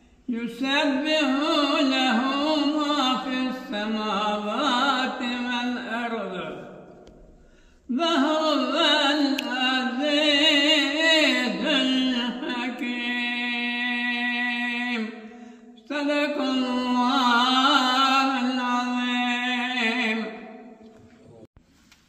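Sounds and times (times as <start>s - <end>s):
elderly man chanting melodically: 0.3s - 6.7s, 7.9s - 15.2s.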